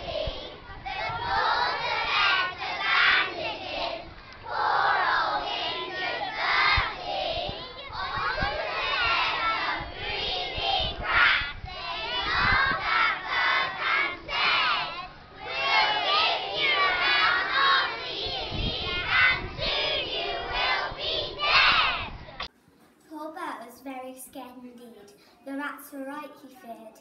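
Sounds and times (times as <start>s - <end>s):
children chanting in unison: 0.0s - 22.2s.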